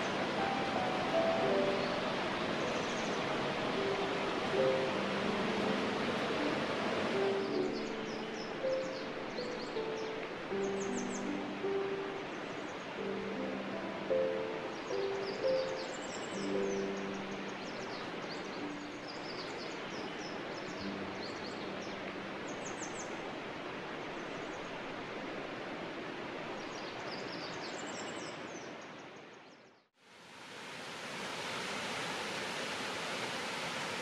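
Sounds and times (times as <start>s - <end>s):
small birds chirping: 0.0s - 6.6s, 7.2s - 13.0s, 14.1s - 23.2s
rushing water: 0.0s - 29.4s, 30.0s - 34.0s.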